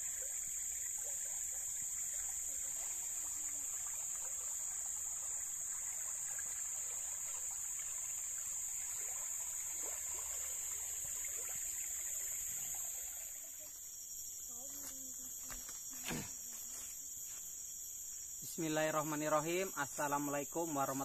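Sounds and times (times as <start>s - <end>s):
stream gurgling over rocks: 0.0s - 14.1s
high-pitched insect drone: 0.0s - 21.0s.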